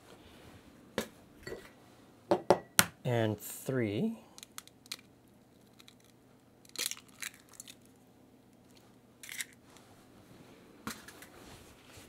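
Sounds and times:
eggshell crackling: 0:04.3 - 0:09.6.

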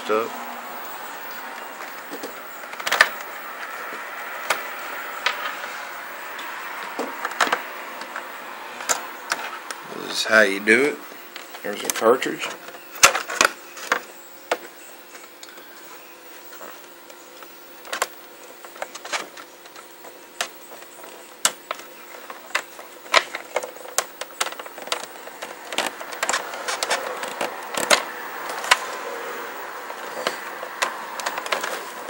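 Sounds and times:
faint steady hum: 0:00.0 - 0:32.0
cable plugs clicking and knocking: 0:06.3 - 0:08.2, 0:21.4 - 0:32.0.

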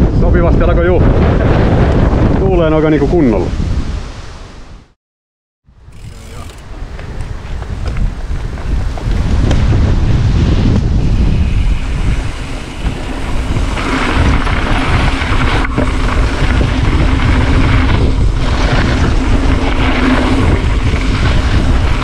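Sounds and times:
wind buffeting microphone: 0:00.0 - 0:04.9, 0:05.7 - 0:22.0
tyres rolling over dirt: 0:12.4 - 0:22.0.

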